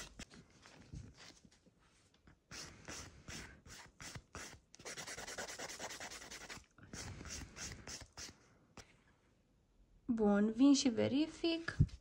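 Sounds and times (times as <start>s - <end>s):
nail file rasping: 2.5s - 8.4s.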